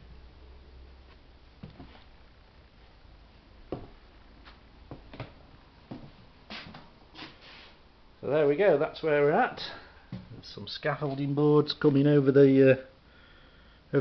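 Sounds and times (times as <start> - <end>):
footsteps knocking on floorboards: 3.7 - 4.0.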